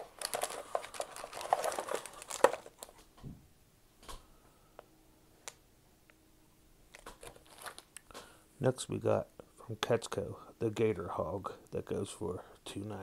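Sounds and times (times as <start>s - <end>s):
plastic bag crinkling: 0.0s - 3.0s, 6.9s - 8.0s.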